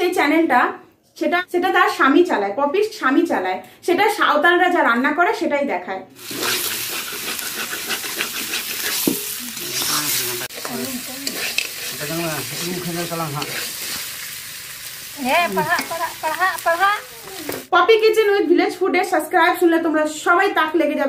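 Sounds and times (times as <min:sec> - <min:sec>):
metal spatula scraping a pan: 0:06.2 - 0:14.4
meat sizzling in oil: 0:06.2 - 0:17.7.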